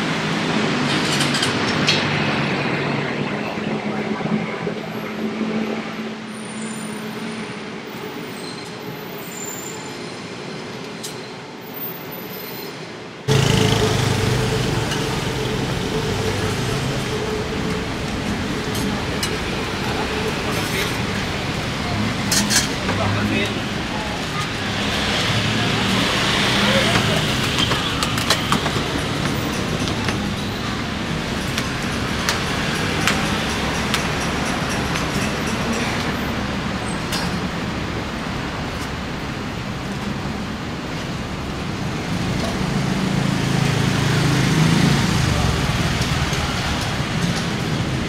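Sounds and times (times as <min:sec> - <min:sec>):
city street traffic: 0:00.0 - 0:48.0
large vehicle passing close by: 0:13.3 - 0:34.8.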